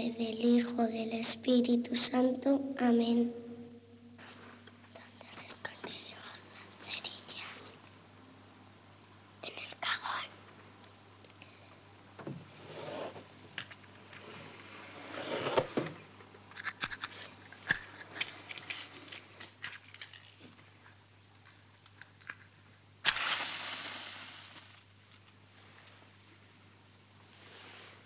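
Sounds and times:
match striking and hissing: 23.0s - 25.4s.

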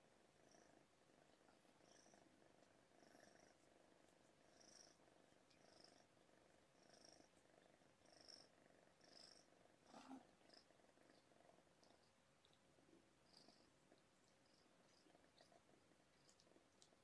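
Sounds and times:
kitten purring: 0.0s - 17.0s.

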